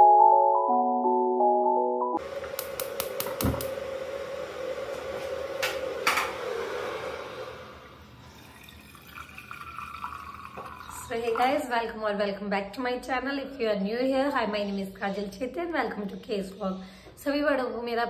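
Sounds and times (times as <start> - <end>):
gas burner hiss: 2.2 - 8.2.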